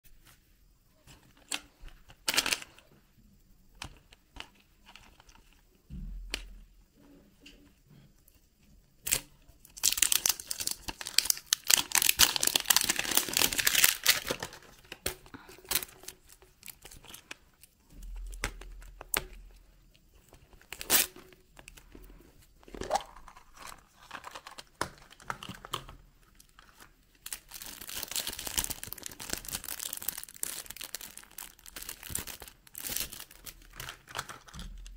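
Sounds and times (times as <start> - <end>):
paper wrapper crinkling and tearing: 9.0 - 19.3, 20.5 - 21.9, 22.6 - 34.9.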